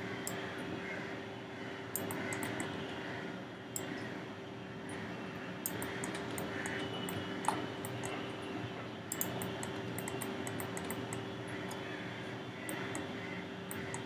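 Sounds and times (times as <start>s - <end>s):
room hum and hiss: 0.0s - 14.0s
mouse and keyboard clicks: 2.0s - 2.7s, 5.7s - 8.2s, 9.1s - 11.8s, 13.7s - 14.0s.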